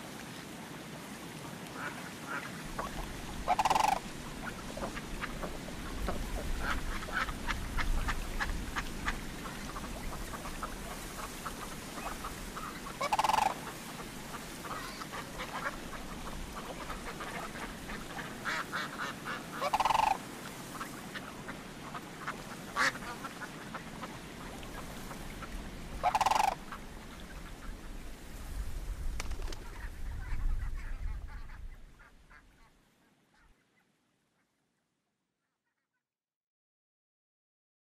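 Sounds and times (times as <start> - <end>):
soft short waterfowl calls: 1.7 - 28.0
loud waterfowl calls: 1.8 - 27.9.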